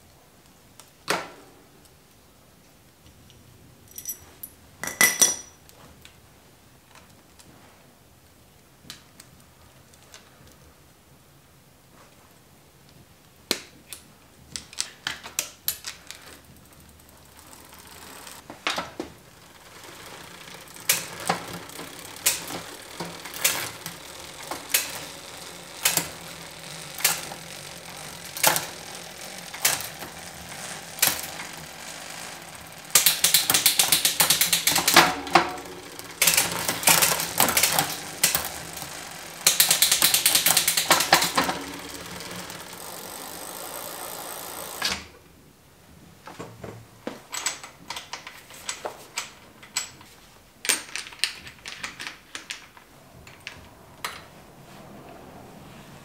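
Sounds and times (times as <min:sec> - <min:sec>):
small metallic clicks: 0:13.9 - 0:45.0
bicycle hub ratcheting: 0:15.6 - 0:44.9.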